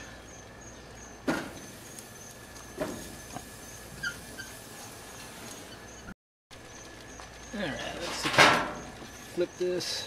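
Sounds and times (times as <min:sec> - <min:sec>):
short squeak: 0:04.0 - 0:04.6.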